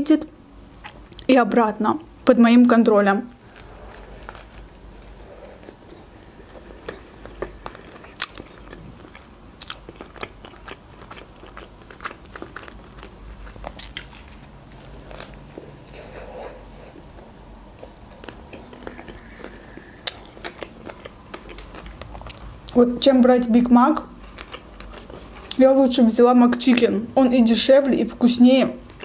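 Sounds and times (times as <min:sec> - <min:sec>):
person chewing: 0:03.4 - 0:22.8, 0:24.2 - 0:25.6.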